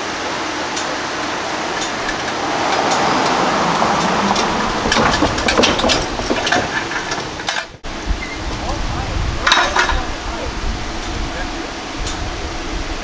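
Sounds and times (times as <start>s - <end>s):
pickup truck driving: 0.0s - 8.2s
tyres clattering over rails: 0.5s - 7.9s.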